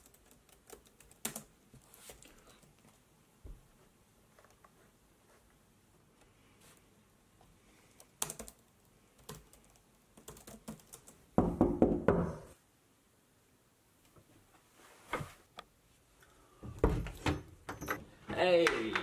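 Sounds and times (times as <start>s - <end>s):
laptop keyboard typing: 0.0s - 1.5s, 7.9s - 11.2s
knocking on wooden door: 11.4s - 12.5s.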